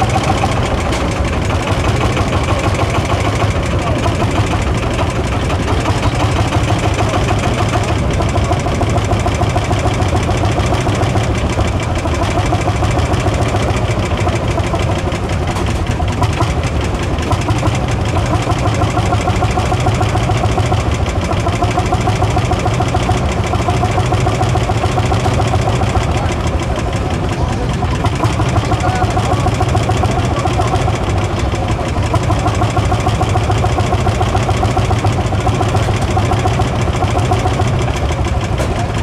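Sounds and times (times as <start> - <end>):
tractor engine idling: 0.0 - 39.0.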